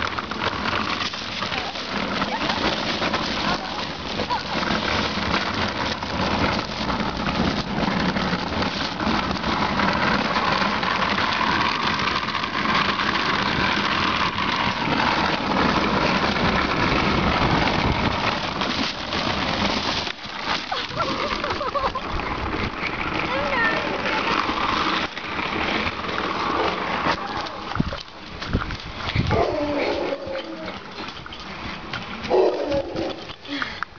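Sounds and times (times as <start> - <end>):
small knocks and rattles: 0.0 - 33.9
wheels rumbling over pavement: 0.0 - 33.9.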